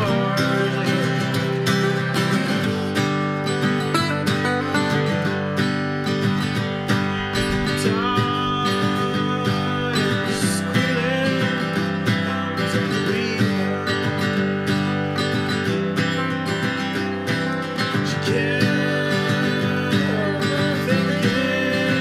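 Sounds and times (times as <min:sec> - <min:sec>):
two acoustic guitars playing: 0:00.0 - 0:22.0.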